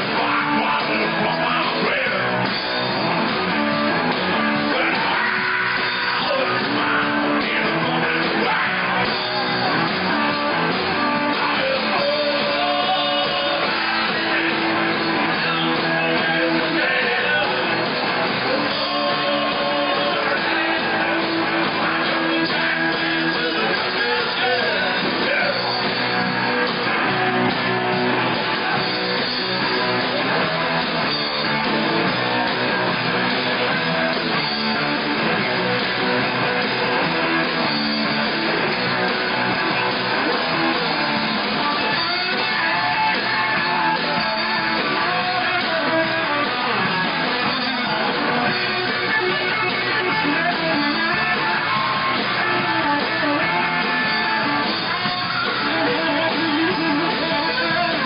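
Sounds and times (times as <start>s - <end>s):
electric guitars: 0.0s - 58.0s
rock band playing live: 0.0s - 58.0s.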